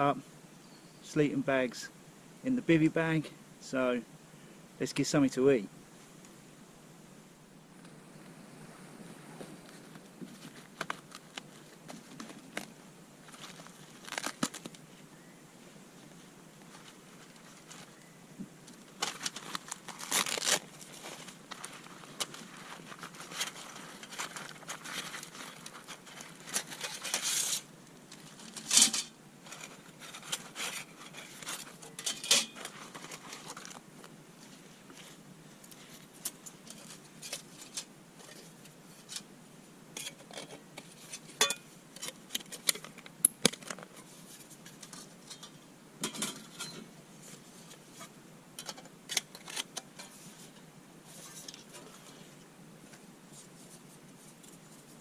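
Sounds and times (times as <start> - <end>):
fabric pouch rustling: 19.0 - 27.2.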